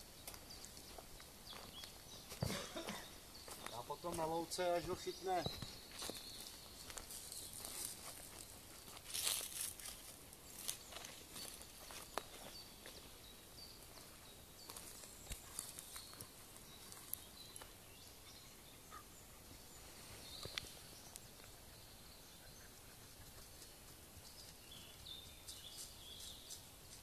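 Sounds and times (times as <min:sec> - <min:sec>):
steps on dry leaves and twigs: 0:00.0 - 0:17.8.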